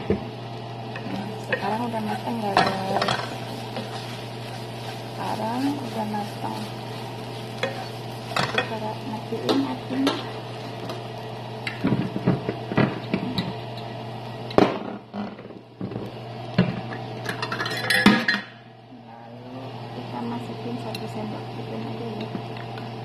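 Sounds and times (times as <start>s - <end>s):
wooden spatula scraping a pan: 1.5s - 8.6s.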